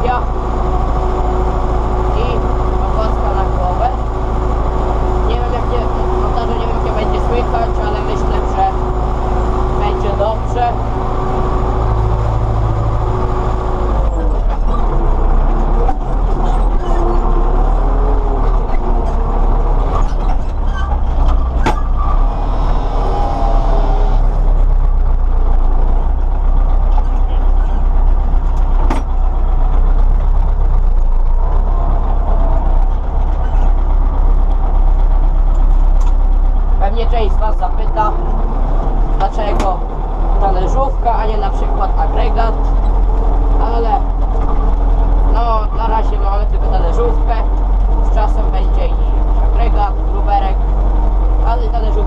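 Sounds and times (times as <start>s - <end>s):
tractor diesel engine running: 0.0s - 52.0s
knocks and rattles: 11.1s - 22.8s, 24.2s - 36.8s.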